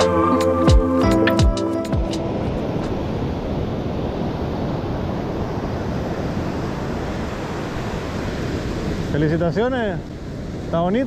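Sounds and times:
ocean surf on a beach: 0.0 - 11.0
wind on microphone: 2.0 - 9.2.

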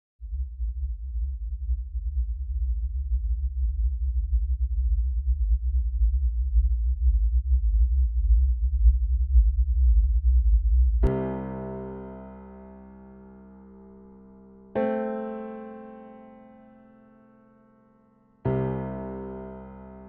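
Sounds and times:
deep low rumble: 0.3 - 15.9.

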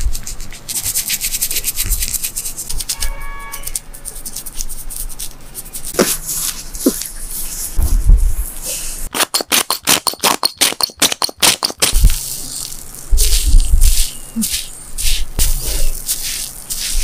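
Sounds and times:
brush scratching through fur: 0.0 - 7.8, 13.2 - 17.0.

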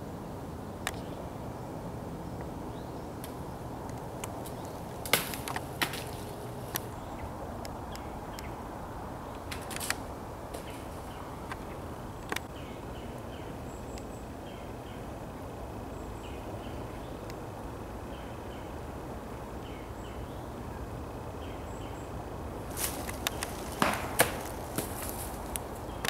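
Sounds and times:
outdoor background hiss: 0.0 - 26.0
dry leaves and twigs snapping underfoot: 3.2 - 7.0, 9.3 - 12.5, 22.6 - 26.0.

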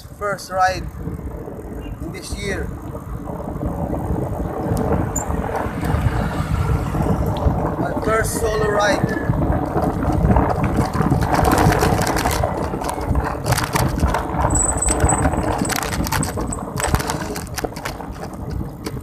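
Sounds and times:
wind buffeting microphone: 0.0 - 19.0
rattling clicks: 9.6 - 19.0.

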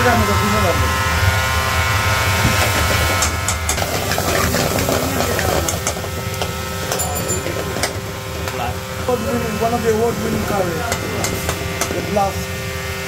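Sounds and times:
kitchen machinery hum and hiss: 0.0 - 13.0
ladle scraping metal pan: 3.8 - 5.8.

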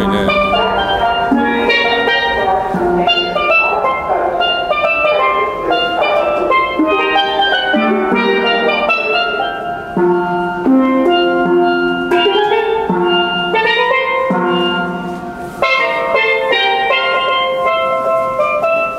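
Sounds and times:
steel pan melody: 0.0 - 18.9.

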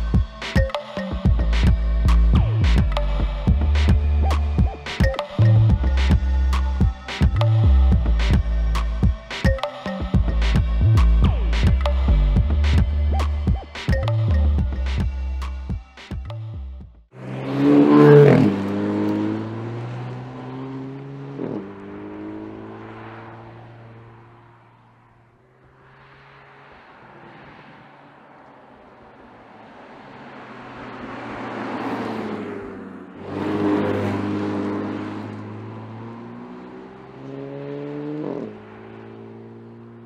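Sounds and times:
car engine pulling away: 17.2 - 40.0.

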